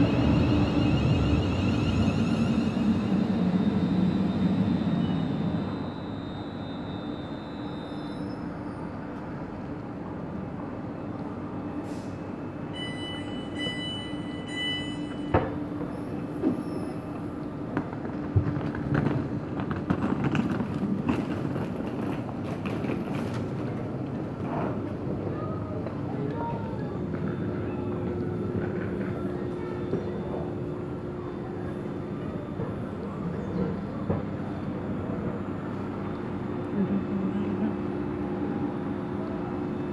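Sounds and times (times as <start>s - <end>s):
electric train humming: 0.0s - 8.4s
door warning beeps: 12.8s - 15.5s
train doors shutting thud: 15.1s - 16.9s.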